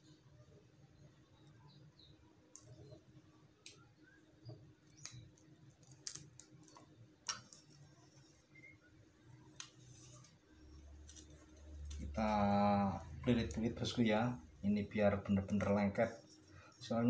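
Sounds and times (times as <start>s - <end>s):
plastic ribbon clicking and crinkling: 4.8s - 7.9s.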